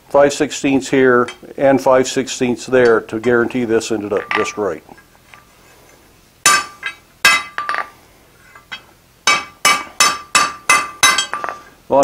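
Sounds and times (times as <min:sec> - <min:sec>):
hammer striking steel on anvil: 0:04.2 - 0:04.7, 0:06.5 - 0:07.9, 0:08.6 - 0:11.7.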